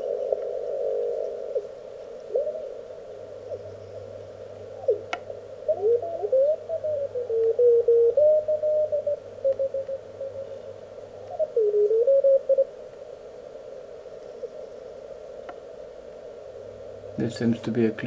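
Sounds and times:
radio band hiss: 17.1 - 18.0.

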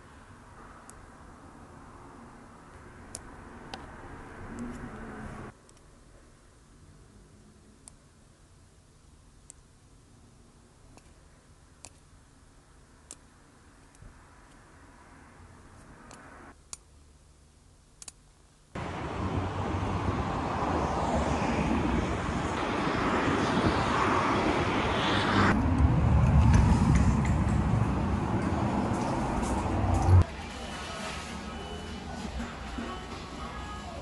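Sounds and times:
loud outdoor rushing noise: 18.8 - 34.0.

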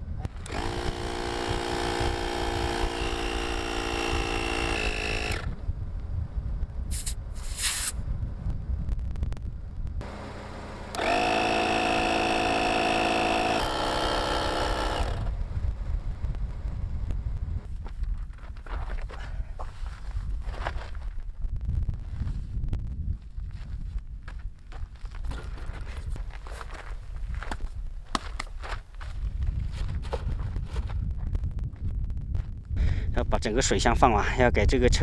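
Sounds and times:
electric air compressor whining hum: 0.2 - 5.6, 10.0 - 15.4
short air hisses: 6.9 - 8.0.

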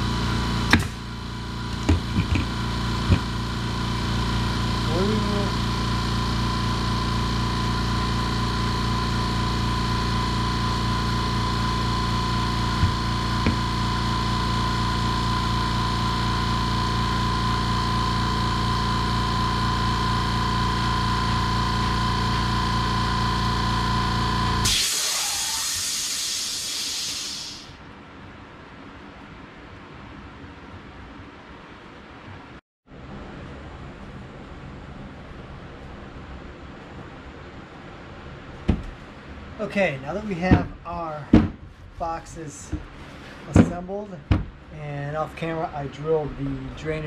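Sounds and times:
air compressor running: 0.0 - 27.9, 38.5 - 47.0
hiss of venting air: 24.6 - 27.8.

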